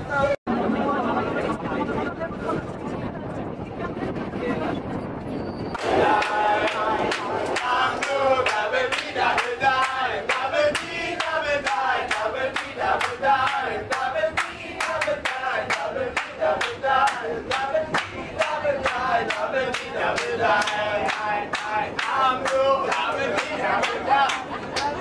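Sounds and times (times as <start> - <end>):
group singing a chant: 5.8 - 24.5
rhythmic hand clapping: 5.8 - 25.0.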